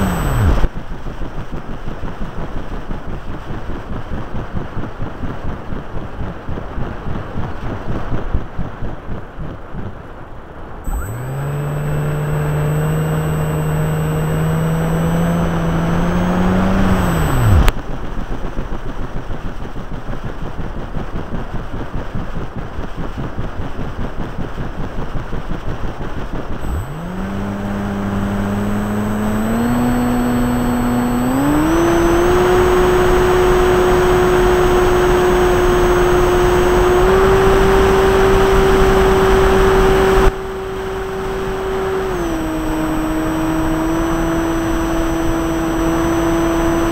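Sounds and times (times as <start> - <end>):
electric motor whine: 0.0 - 0.7, 10.9 - 17.7, 26.6 - 46.9.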